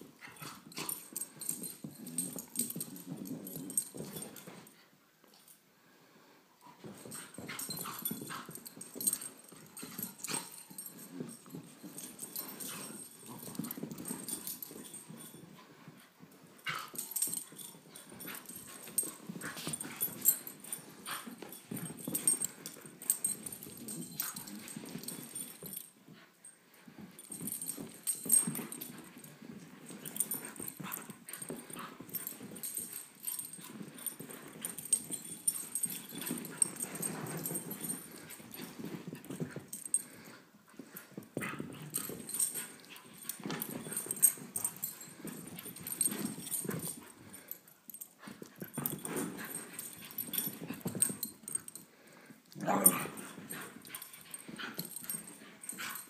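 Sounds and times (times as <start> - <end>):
paws scuffling on floor: 0.0 - 4.9, 6.6 - 56.0
dogs play noises: 0.0 - 5.6, 6.6 - 56.0.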